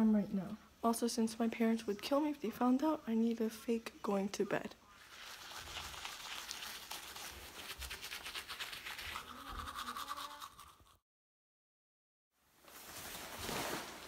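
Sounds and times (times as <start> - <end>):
toothbrush scrubbing teeth: 4.9 - 11.0.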